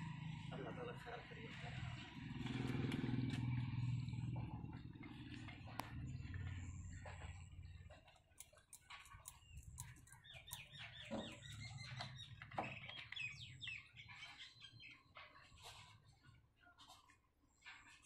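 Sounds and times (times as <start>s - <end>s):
birds chirping: 0.0s - 16.0s
small clicks: 8.3s - 11.7s.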